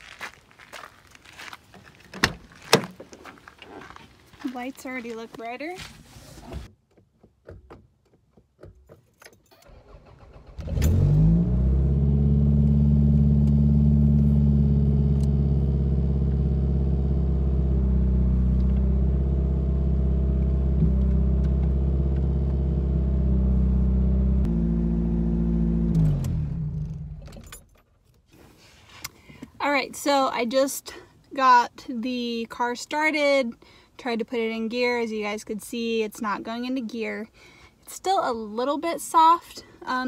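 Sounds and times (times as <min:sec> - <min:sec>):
car engine cranking and idling: 0:06.5 - 0:28.3.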